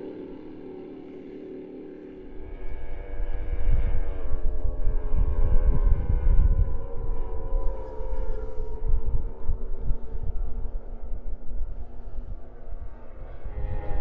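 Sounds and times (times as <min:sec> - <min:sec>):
heavy low rumble: 0:00.0 - 0:14.0
powerboat engine running loudly: 0:00.0 - 0:14.0.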